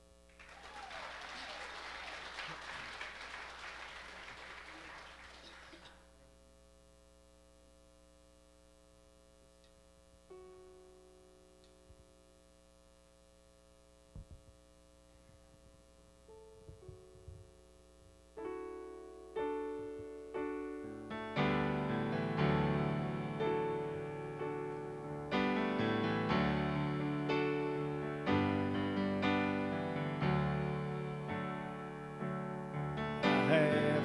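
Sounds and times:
applause: 0.3s - 6.0s
electric keyboard sustained chord: 10.3s - 11.6s, 16.2s - 34.0s
piano chords: 18.4s - 34.0s.

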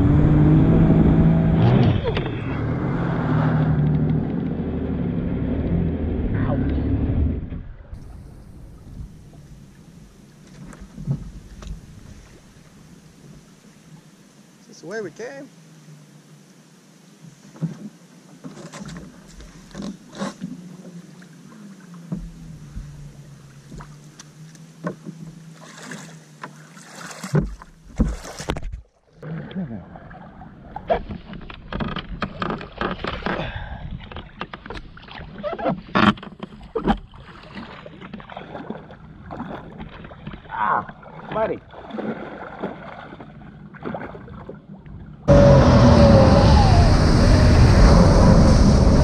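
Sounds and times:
jet ski engine running: 0.0s - 12.0s, 19.8s - 26.6s, 45.1s - 49.0s
water splashing: 17.5s - 33.4s, 34.0s - 49.0s
wind noise: 45.3s - 49.0s.

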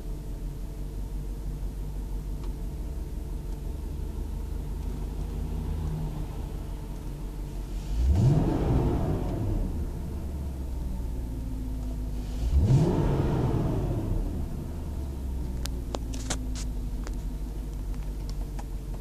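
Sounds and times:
car engine idling: 0.0s - 19.0s
engine revving: 7.7s - 10.8s, 12.1s - 15.7s.

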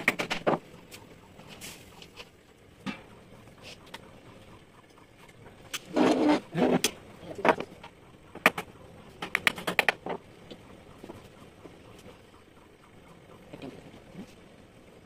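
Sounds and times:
sharp clicks and knocks: 0.0s - 1.1s, 4.8s - 11.2s.

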